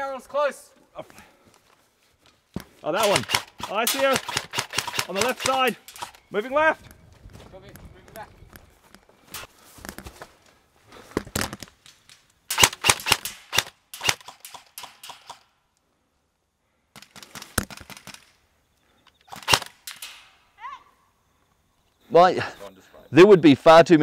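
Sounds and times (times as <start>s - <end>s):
airsoft guns firing bursts: 3.0s - 6.2s, 12.5s - 15.4s, 19.3s - 20.2s.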